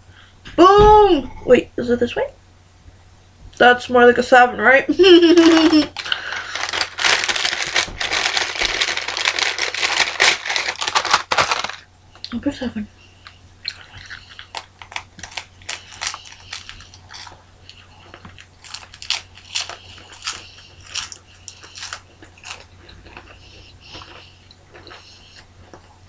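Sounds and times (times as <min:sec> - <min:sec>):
crackers crunching while chewed: 0:05.4 - 0:12.3, 0:13.2 - 0:26.0.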